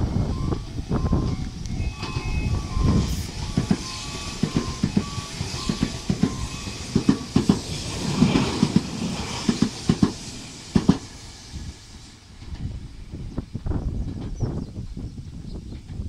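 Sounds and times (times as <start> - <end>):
electric train passing: 0.0 - 13.8.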